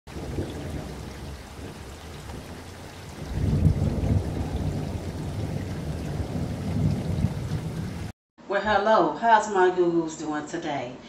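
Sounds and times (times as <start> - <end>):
rushing water: 0.1 - 8.1.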